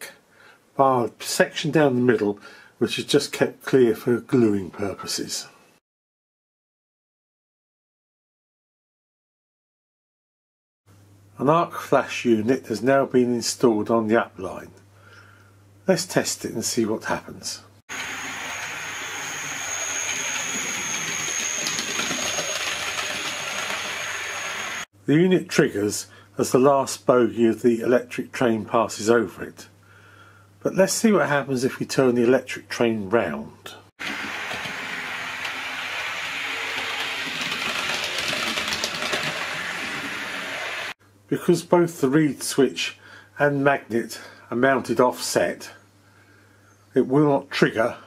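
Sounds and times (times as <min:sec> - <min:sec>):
high motor whine: 0:17.9 - 0:24.9
model train wheels rumbling on rails: 0:34.3 - 0:40.9.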